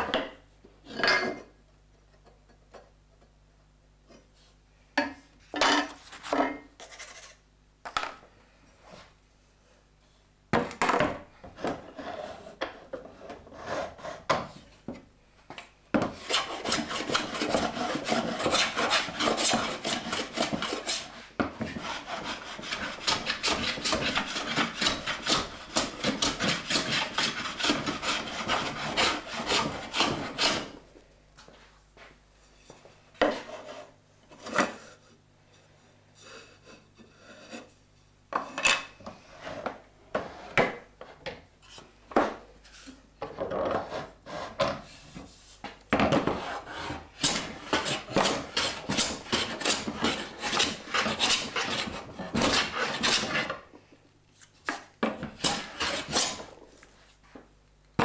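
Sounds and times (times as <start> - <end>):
hand plane rasping on wood: 13.5 - 14.2, 16.2 - 30.8, 46.4 - 53.6, 55.2 - 56.5.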